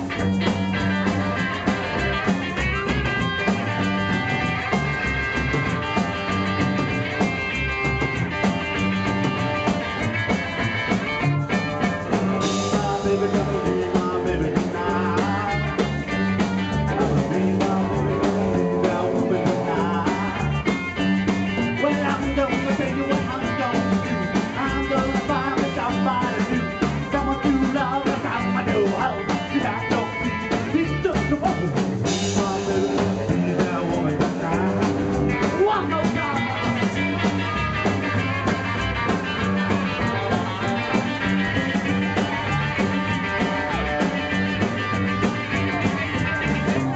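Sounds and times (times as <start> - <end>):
drums: 0.0 - 46.9
electric guitar: 0.0 - 46.9
upright bass: 0.0 - 46.9
person singing lead vocal: 12.4 - 20.8, 21.6 - 37.1.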